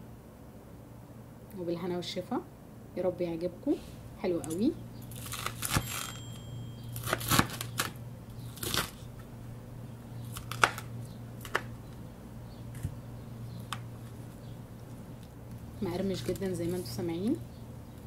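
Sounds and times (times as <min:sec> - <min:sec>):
knife crunching through fried crust: 0:05.0 - 0:06.2, 0:06.9 - 0:09.2, 0:10.2 - 0:11.8.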